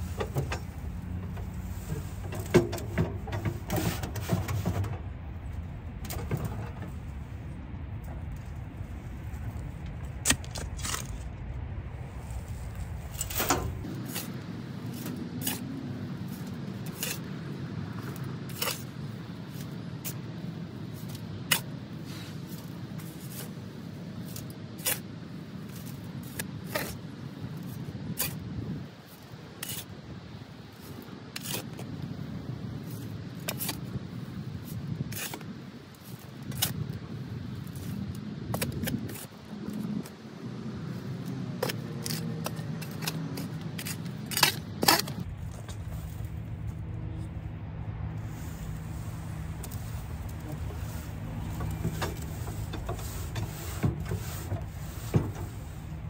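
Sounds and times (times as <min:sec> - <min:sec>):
shovel digging into soil: 0:10.2 - 0:11.3, 0:12.2 - 0:20.3, 0:21.0 - 0:23.6, 0:24.2 - 0:25.1, 0:25.7 - 0:30.0, 0:30.8 - 0:32.0, 0:32.9 - 0:33.9, 0:34.6 - 0:36.9, 0:37.6 - 0:40.1, 0:41.5 - 0:46.3.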